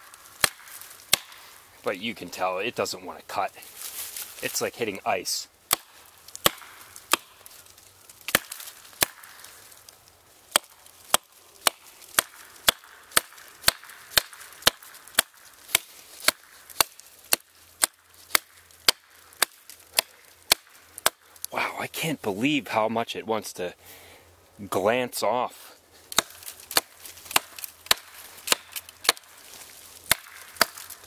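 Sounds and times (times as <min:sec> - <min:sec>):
hatchet chopping branch: 0:00.0 - 0:01.6, 0:05.6 - 0:09.8, 0:10.5 - 0:21.5, 0:26.1 - 0:31.0.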